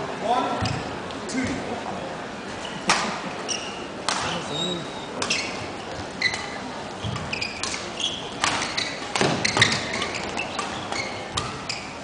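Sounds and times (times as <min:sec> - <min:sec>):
low hall background: 0:00.0 - 0:12.0
shoes squeaking on court: 0:02.5 - 0:12.0
badminton rackets hitting shuttlecock: 0:05.2 - 0:11.8.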